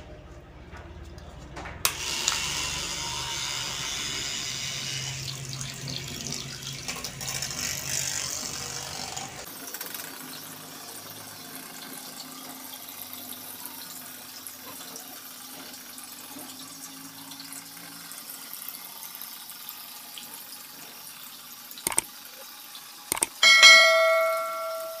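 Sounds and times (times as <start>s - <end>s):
small motor hum: 1.9s - 12.6s
clicks: 21.9s - 22.1s, 23.1s - 23.4s
bell chime: 23.4s - 25.0s.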